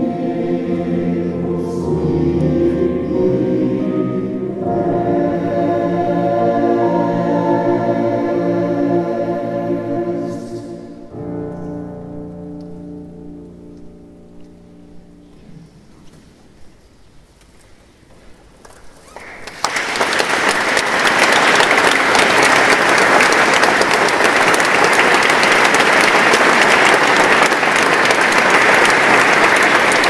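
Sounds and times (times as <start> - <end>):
audience applause: 19.2 - 30.0.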